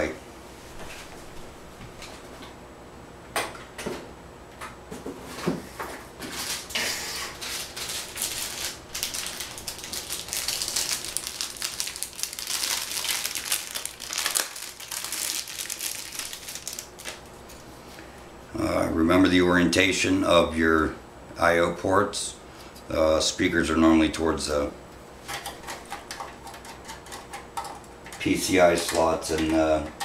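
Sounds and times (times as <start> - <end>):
plastic packaging crinkling: 6.3 - 17.6.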